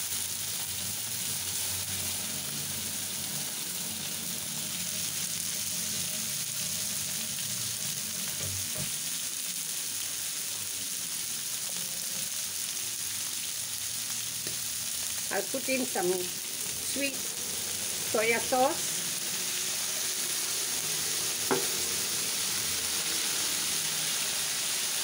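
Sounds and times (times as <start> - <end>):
oil sizzling in a wok: 0.0 - 25.0
brief knock: 21.5 - 21.7.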